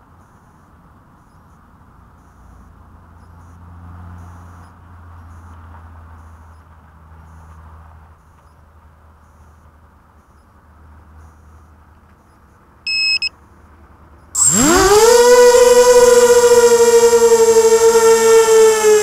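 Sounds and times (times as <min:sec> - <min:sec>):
drone motors whining: 0:12.9 - 0:13.3, 0:14.4 - 0:19.0
short high beeps: 0:12.9 - 0:13.3.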